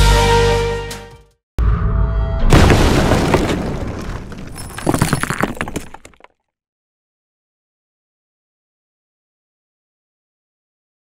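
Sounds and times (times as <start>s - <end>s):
glass shattering: 2.5s - 6.3s.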